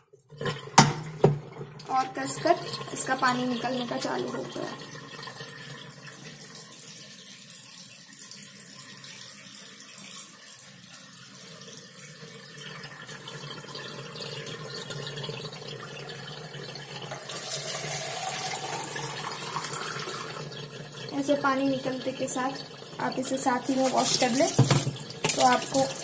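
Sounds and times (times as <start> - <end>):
water draining from washing machine: 0.0 - 26.0.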